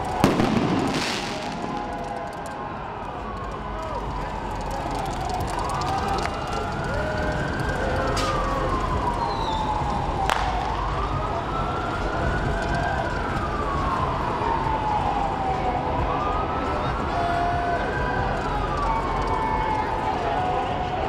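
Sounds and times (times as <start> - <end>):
emergency siren wailing: 0.0 - 21.0
street and crowd noise: 0.0 - 21.0
sharp pop: 10.3 - 10.6.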